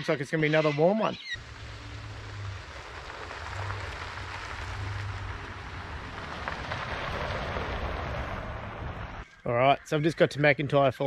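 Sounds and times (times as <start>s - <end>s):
low engine hum: 1.4s - 9.3s
road and tyre noise: 1.4s - 9.6s.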